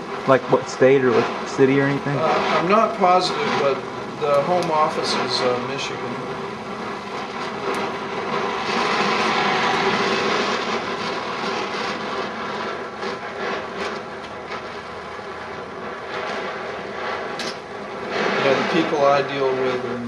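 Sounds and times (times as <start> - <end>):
torch flame hissing: 0.0 - 20.0
short crackles: 0.1 - 20.0.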